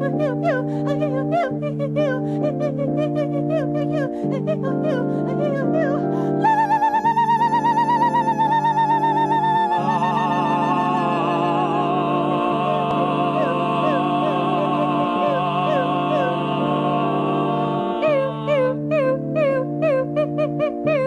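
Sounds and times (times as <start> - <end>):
electric organ figure: 0.0 - 6.4, 7.9 - 21.0
wordless singing voices: 8.8 - 19.4.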